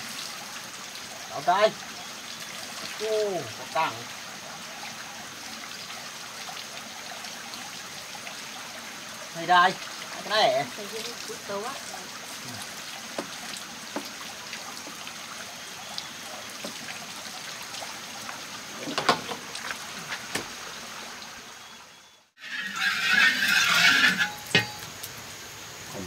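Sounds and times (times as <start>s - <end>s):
water rushing and splashing: 0.0s - 26.0s
water trickling: 0.0s - 26.0s
small knocks: 13.1s - 14.2s, 18.8s - 19.5s.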